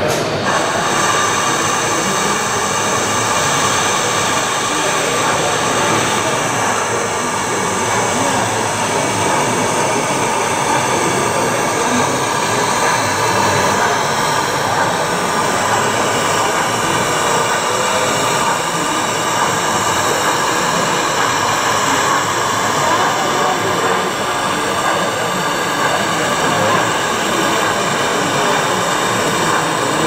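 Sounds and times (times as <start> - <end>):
model trains running: 0.0 - 30.0.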